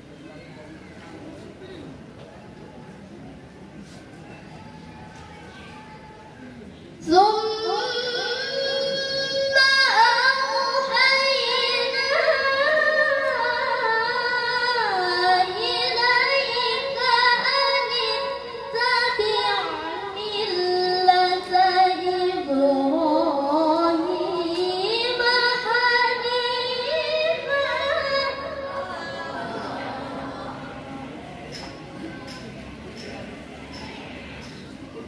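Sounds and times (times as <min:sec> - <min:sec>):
woman reciting melismatic chant: 0:07.0 - 0:31.7.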